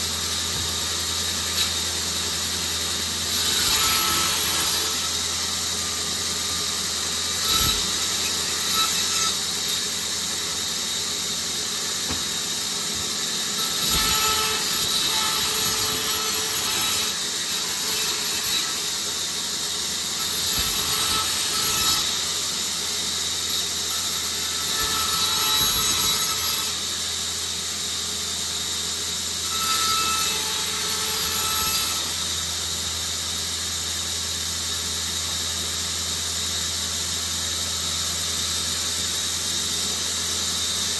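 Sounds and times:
band saw humming: 0:00.0 - 0:19.2
saw blade cutting branch: 0:06.6 - 0:09.9.

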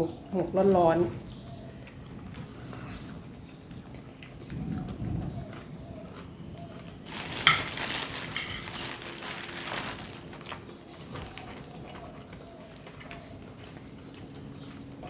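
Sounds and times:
rustling and eating noise: 0:00.2 - 0:15.0
cutlery clinking on a plate: 0:07.5 - 0:07.7.

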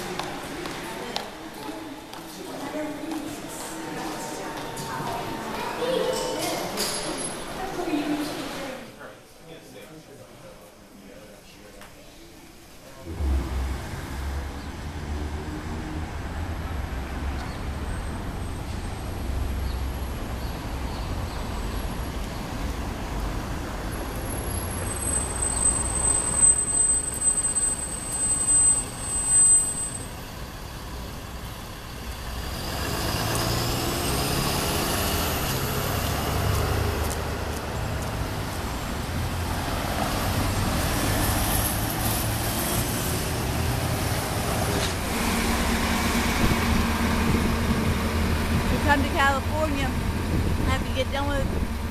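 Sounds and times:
cars and buses passing: 0:00.0 - 0:08.9, 0:12.6 - 0:51.9
thin high squeal: 0:24.9 - 0:30.2.

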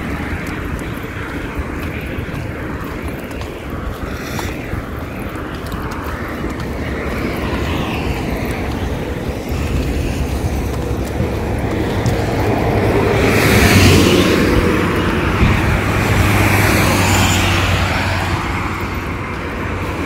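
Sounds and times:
approaching vehicle: 0:00.0 - 0:20.0
cars passing on tarmac: 0:00.0 - 0:20.0.

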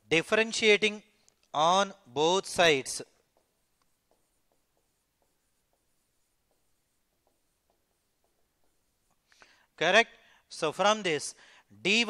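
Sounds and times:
pen tapping and scratching on board: 0:03.1 - 0:09.3.

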